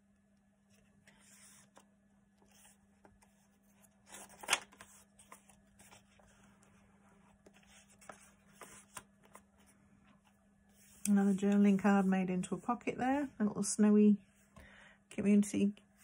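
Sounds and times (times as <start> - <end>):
paper pages rustling: 0.7 - 12.0.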